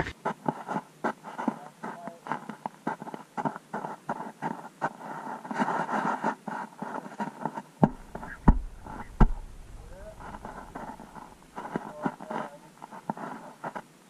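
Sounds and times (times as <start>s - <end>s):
boots shuffling on ice: 0.0s - 13.8s
heavy thumps: 7.8s - 12.0s.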